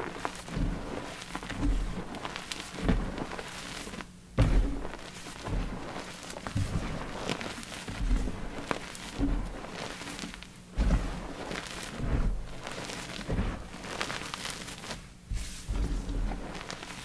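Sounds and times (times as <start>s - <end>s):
chalk crushed by hand: 0.0s - 17.0s.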